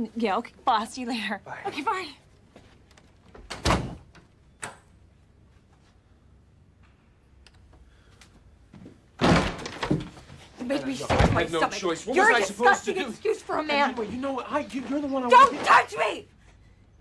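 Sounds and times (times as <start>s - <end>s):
door shutting with thud: 3.4s - 4.8s, 9.2s - 10.2s, 11.1s - 11.5s
faint small clicks: 7.4s - 8.4s.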